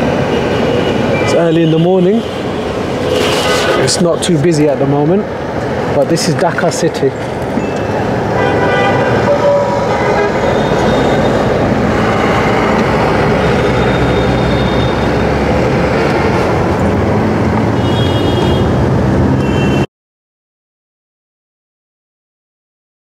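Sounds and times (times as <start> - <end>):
vehicle engines and road noise: 0.0 - 19.9
vehicle horns: 0.3 - 4.1, 8.3 - 12.8, 13.4 - 15.4, 17.7 - 19.9.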